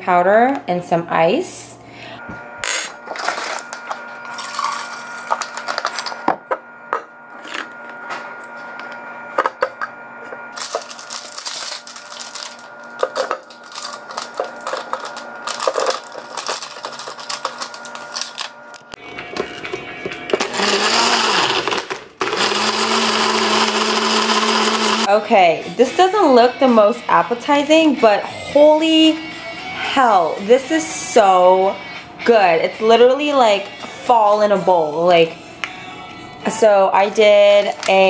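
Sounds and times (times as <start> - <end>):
blender whirring: 2.2 - 6.5, 10.5 - 25.2, 37.3 - 38.0.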